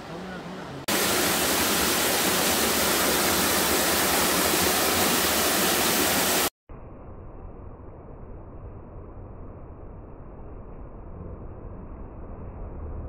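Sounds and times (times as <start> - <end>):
rushing water: 0.8 - 6.5.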